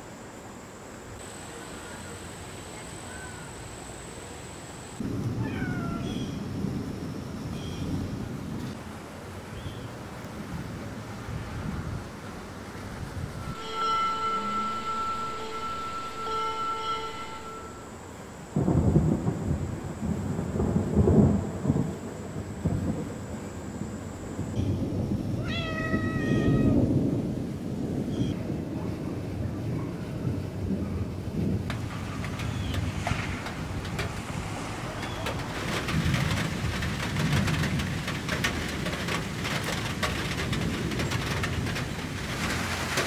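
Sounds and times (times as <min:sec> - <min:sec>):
steady hiss with high whine: 0:00.0 - 0:05.4, 0:06.0 - 0:28.4
wind rumbling on microphone: 0:05.0 - 0:13.6, 0:18.1 - 0:43.0
cat meowing: 0:05.4 - 0:06.3, 0:25.4 - 0:26.8.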